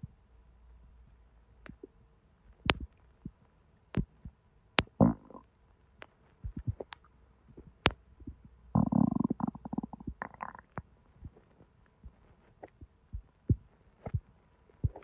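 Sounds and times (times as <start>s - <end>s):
stomach pops and clicks: 1.6s - 1.9s, 2.6s - 15.0s
stomach gurgle: 4.8s - 5.5s, 6.4s - 15.0s.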